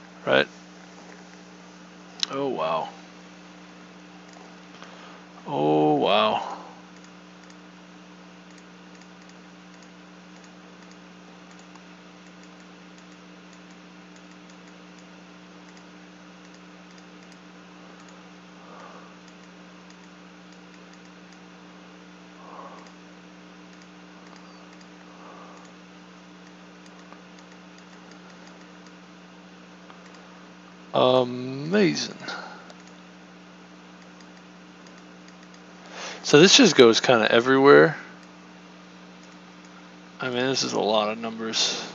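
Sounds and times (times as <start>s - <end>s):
low electrical hum: 0.0s - 41.9s
keyboard and mouse clicking: 7.0s - 7.6s, 8.5s - 17.4s, 19.2s - 21.4s, 23.7s - 25.8s, 26.4s - 29.0s, 32.7s - 33.0s, 34.0s - 35.6s.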